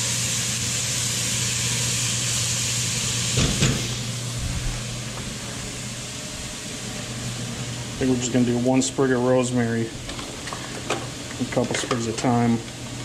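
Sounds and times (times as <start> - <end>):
vegetables sizzling in oil: 0.0 - 4.3.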